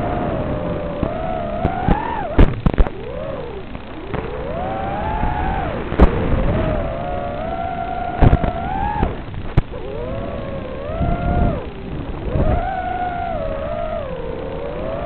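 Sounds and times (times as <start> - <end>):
drone motors whining: 0.0 - 15.0
sharp pops: 1.0 - 3.0, 5.9 - 6.4, 8.2 - 9.8.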